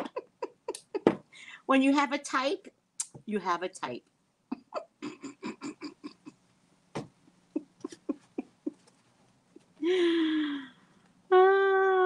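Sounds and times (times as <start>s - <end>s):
woman laughing: 0.0s - 1.2s, 4.5s - 6.4s, 7.5s - 8.9s.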